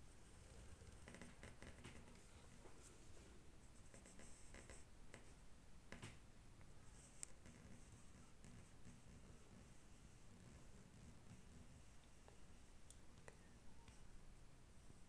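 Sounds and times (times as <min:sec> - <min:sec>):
pencil scratching on paper: 0:00.9 - 0:02.8, 0:03.7 - 0:05.4, 0:06.9 - 0:12.0.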